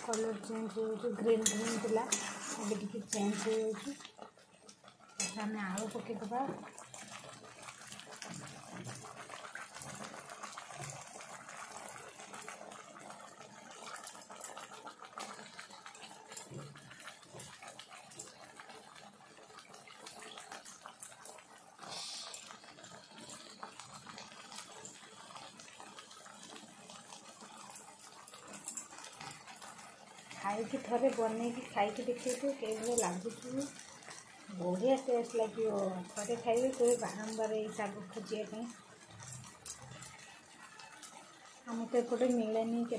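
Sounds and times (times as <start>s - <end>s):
food sizzling and bubbling: 0.0s - 42.9s
metal spatula clicks and scrapes: 1.1s - 4.1s, 5.1s - 6.1s.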